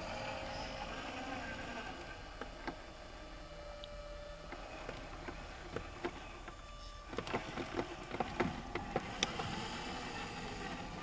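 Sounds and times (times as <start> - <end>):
small electric motors whining: 0.0 - 11.0.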